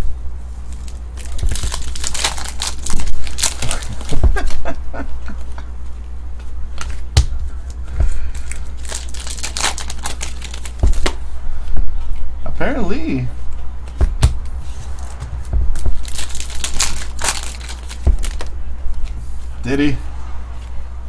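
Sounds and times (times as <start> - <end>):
steady low hum: 0.0 - 21.0
card pack wrapper crinkling: 0.7 - 4.6, 8.4 - 11.2, 15.8 - 18.5
cards handled: 6.7 - 11.2, 13.9 - 19.2.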